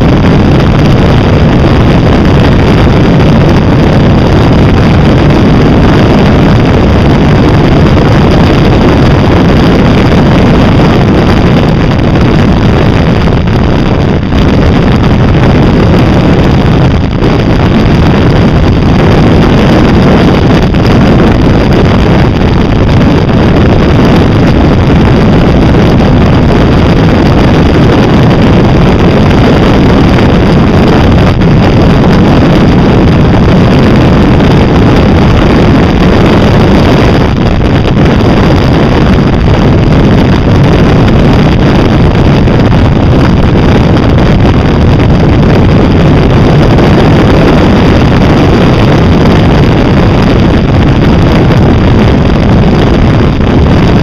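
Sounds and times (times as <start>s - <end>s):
wind rush on microphone: 0.0s - 54.0s.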